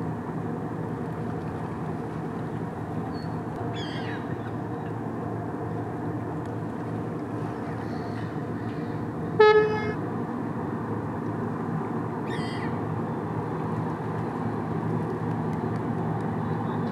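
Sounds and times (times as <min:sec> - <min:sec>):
low ship engine rumble: 0:00.0 - 0:16.9
gull calling: 0:03.8 - 0:04.3, 0:12.3 - 0:12.8
ship horn toot: 0:09.3 - 0:10.1.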